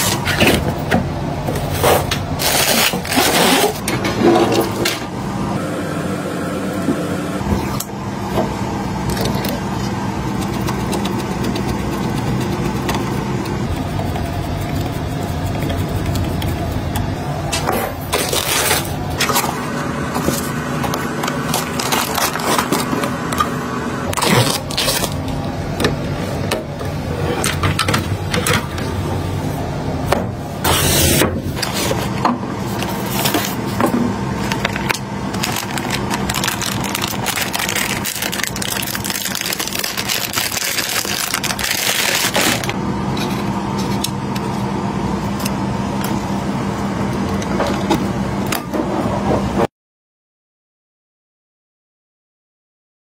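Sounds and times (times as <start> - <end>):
steady background hum: 0.0 - 49.7.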